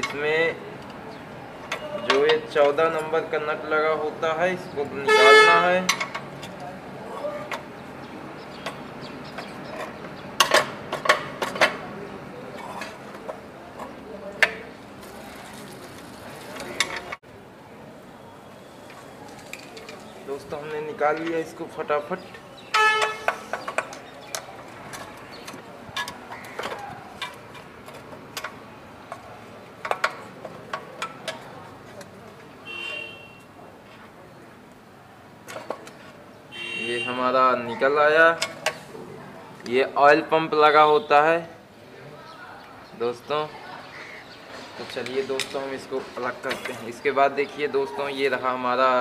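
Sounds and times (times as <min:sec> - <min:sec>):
metal engine parts and tools clinking: 0:05.8 - 0:06.7, 0:22.6 - 0:32.2.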